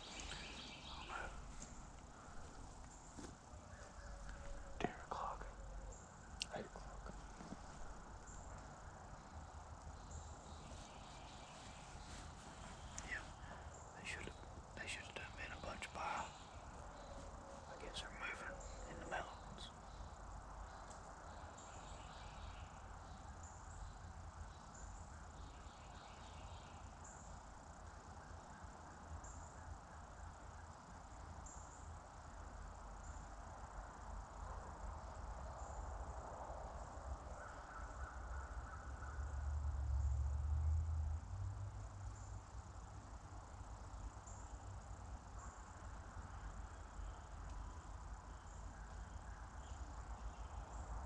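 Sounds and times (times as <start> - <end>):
faint insect chirps: 0.0 - 51.0
soft steady hiss: 0.0 - 51.0.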